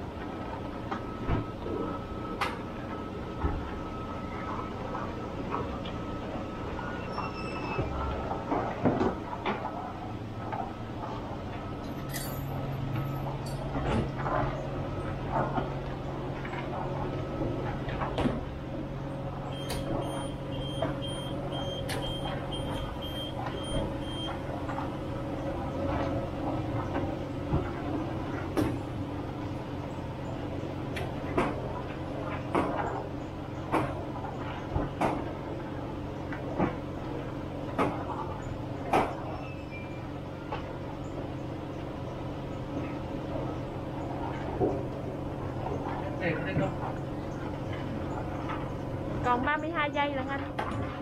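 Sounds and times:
car wash equipment humming: 0.0s - 51.0s
faint high beeps: 19.5s - 24.4s.

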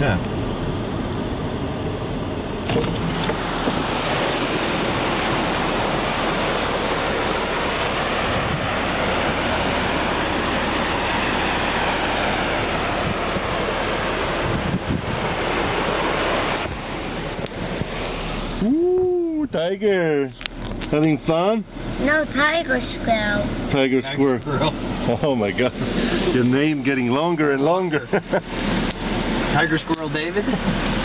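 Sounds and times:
wind on microphone: 0.0s - 19.5s
surf washing onto beach: 0.0s - 22.2s, 22.9s - 31.0s
steady high hiss: 0.0s - 31.0s.

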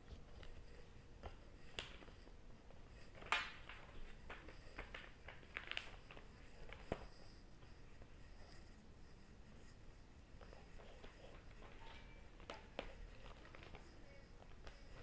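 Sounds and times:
paper crinkling: 0.0s - 8.8s, 10.4s - 15.0s
taps on paper: 3.2s - 6.2s, 11.6s - 15.0s.

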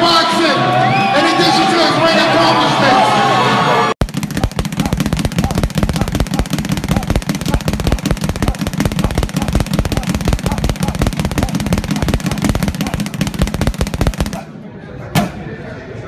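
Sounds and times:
speed bag rattling: 4.0s - 14.5s.

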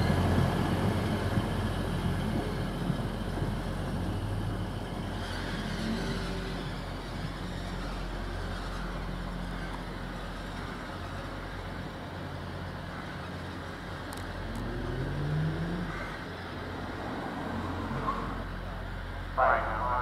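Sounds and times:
diesel train engine running: 0.0s - 20.0s.

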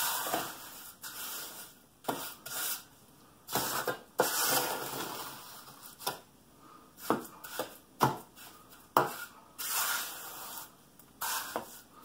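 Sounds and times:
trowel scraping wet concrete: 0.0s - 2.9s, 9.0s - 11.9s.

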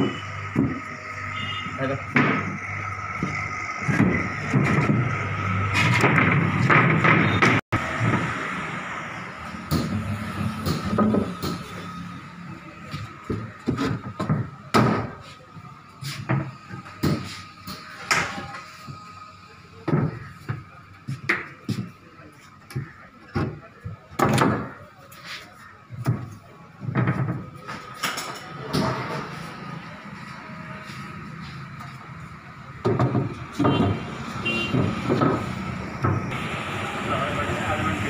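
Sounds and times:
knocks and thuds of wooden parts: 0.0s - 1.0s, 2.0s - 8.4s, 9.5s - 12.0s, 12.8s - 19.2s, 19.8s - 25.0s, 25.9s - 29.3s, 31.6s - 36.4s.

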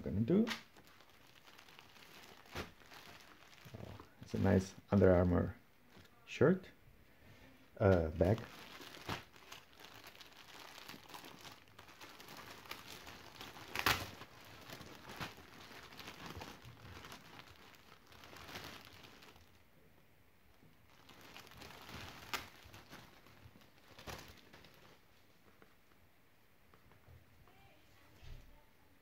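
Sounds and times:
plastic bag crinkling: 0.4s - 4.7s, 7.9s - 19.6s, 20.8s - 25.1s.

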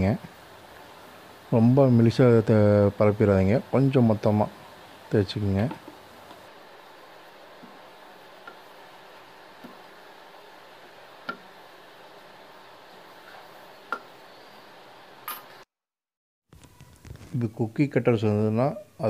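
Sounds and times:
faint hiss: 0.0s - 15.6s.

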